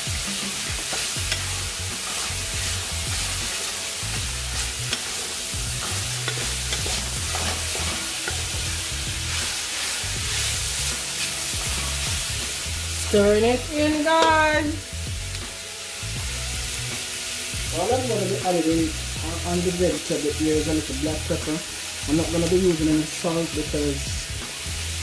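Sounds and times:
low background music: 0.0s - 25.0s
vegetables sizzling in a pan: 0.0s - 25.0s
wooden spatula stirring: 0.4s - 12.6s.

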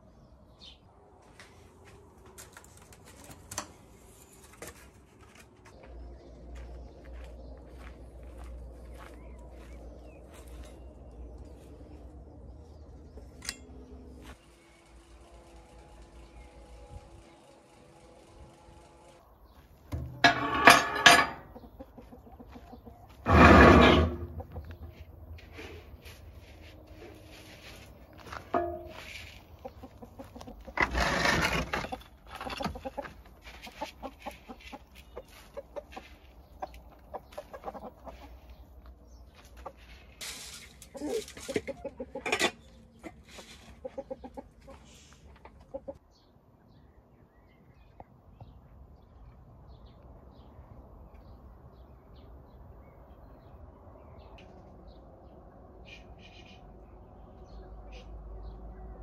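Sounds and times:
chickens clucking: 20.1s - 26.1s, 26.7s - 46.2s.

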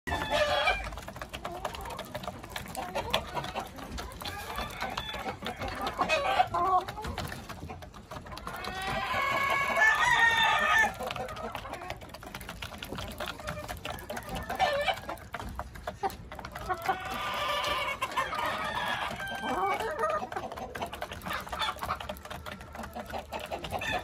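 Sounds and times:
beaks tapping on trough: 0.1s - 24.0s
hens clucking: 0.1s - 24.0s
rooster crowing: 9.3s - 11.0s.

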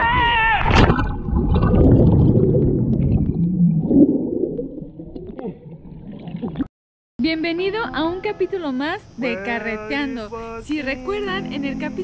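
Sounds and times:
underwater rumble and gurgling: 0.7s - 6.7s
faint moaning tones: 7.5s - 12.0s.

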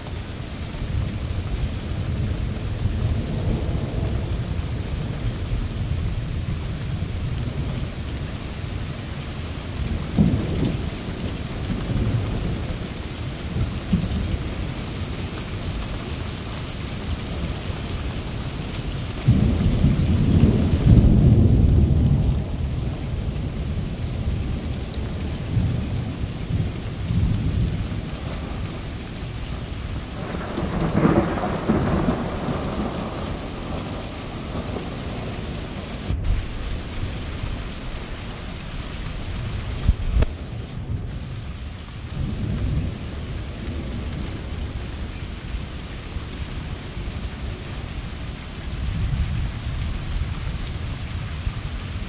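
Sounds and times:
steady rain falling: 0.0s - 52.0s
rolling thunder: 1.9s - 7.9s, 9.9s - 38.7s.

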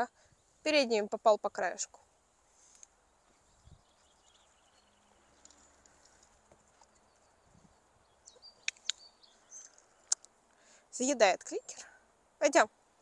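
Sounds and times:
faint bird chirps: 3.0s - 10.8s.

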